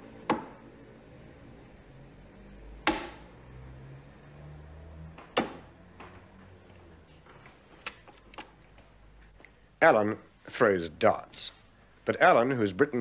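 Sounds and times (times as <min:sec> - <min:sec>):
darts striking a dartboard: 0:00.2 - 0:00.6, 0:02.8 - 0:03.2, 0:05.2 - 0:05.7.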